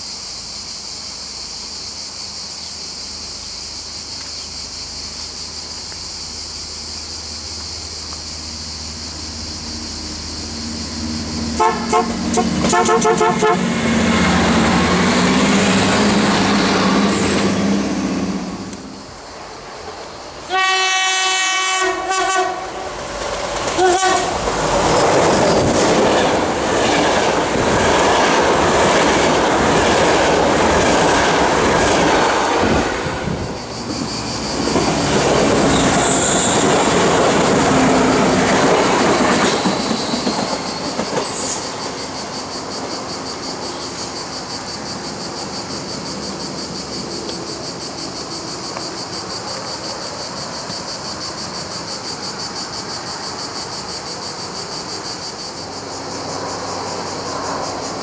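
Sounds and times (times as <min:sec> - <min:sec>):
cicadas buzzing: 0:00.0 - 0:58.0
train rumbling and wheel clatter: 0:02.2 - 0:58.0
train horn blasts: 0:11.5 - 0:14.1, 0:20.5 - 0:22.9, 0:23.8 - 0:24.4.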